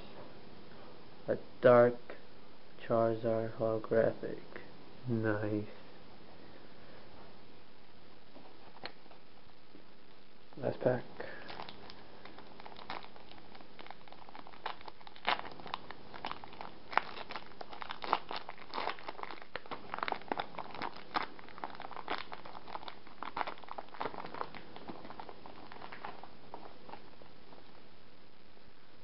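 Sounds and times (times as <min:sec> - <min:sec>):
foil wrapper crinkling and tearing: 0:10.9 - 0:27.7.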